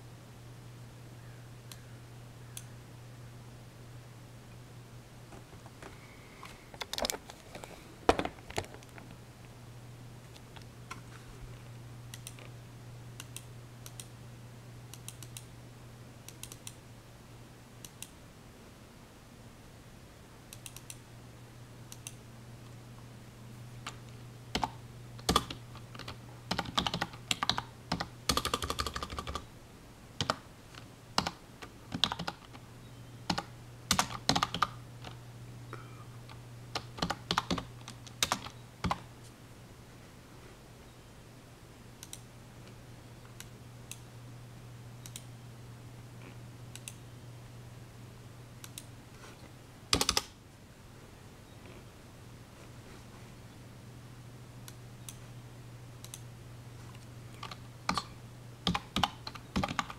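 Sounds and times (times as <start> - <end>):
computer keyboard typing: 12.1 - 12.5, 23.9 - 29.5, 30.2 - 32.6, 33.3 - 35.2, 36.3 - 39.1, 49.9 - 50.3, 57.0 - 59.9.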